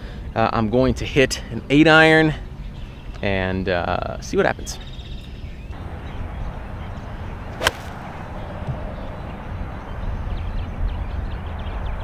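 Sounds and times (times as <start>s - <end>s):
golf club striking ball: 7.5s - 8.4s.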